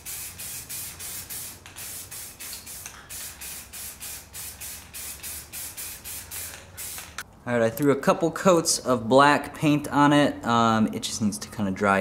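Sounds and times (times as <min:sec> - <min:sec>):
spray can hissing in pulses: 0:00.0 - 0:07.2.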